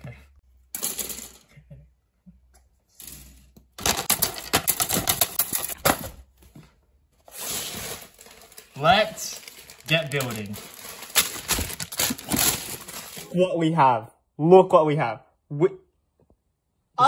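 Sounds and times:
plastic parts clattering: 0:02.9 - 0:06.3, 0:07.3 - 0:13.4.

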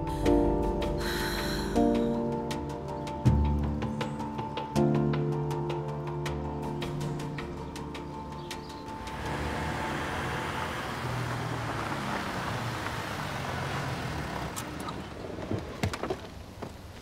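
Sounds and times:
car engine and tyres on wet street: 0:08.9 - 0:17.0.

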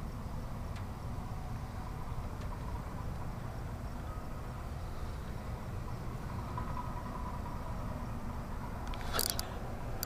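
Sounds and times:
low outdoor rumble: 0:00.0 - 0:10.0
burst of clicking: 0:08.9 - 0:09.5.

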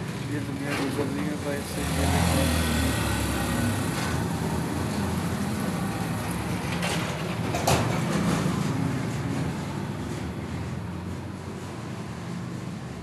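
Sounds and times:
small engine running: 0:01.4 - 0:06.1.

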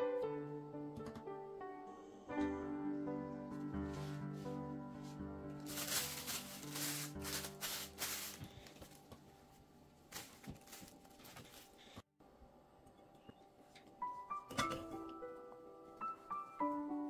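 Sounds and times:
quiet background music: 0:00.0 - 0:17.0
cloth towel rustling: 0:03.9 - 0:12.0
cling film crinkling: 0:05.6 - 0:09.1, 0:10.1 - 0:11.9.

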